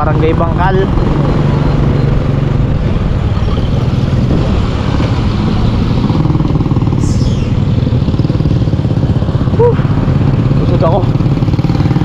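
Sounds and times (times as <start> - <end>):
motorcycle engine running: 0.0 - 12.0
high falling squeal: 7.0 - 7.8.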